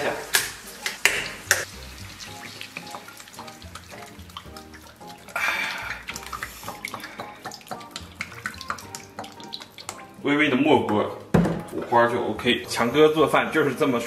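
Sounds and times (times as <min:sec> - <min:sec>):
light background music: 0:00.0 - 0:14.0
oil pouring into a wok: 0:01.1 - 0:10.2.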